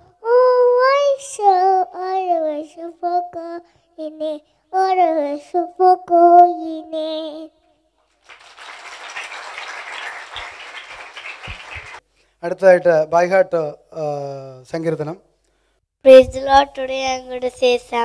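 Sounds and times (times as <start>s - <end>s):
girl singing unaccompanied: 0.0s - 7.7s, 16.1s - 18.0s
applause: 8.2s - 12.0s.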